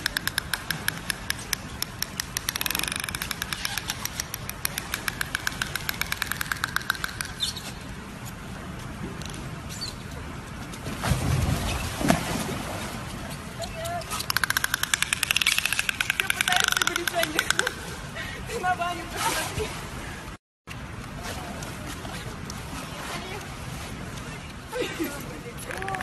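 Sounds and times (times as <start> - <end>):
dolphin clicks and squeaks: 0.0 - 7.9, 9.2 - 10.2, 13.3 - 17.8, 25.6 - 26.0
water splash: 10.8 - 13.4.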